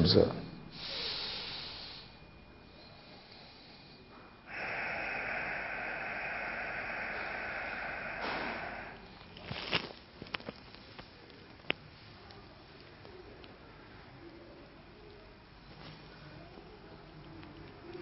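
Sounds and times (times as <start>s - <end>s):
person breathing through nose: 0.7s - 9.2s.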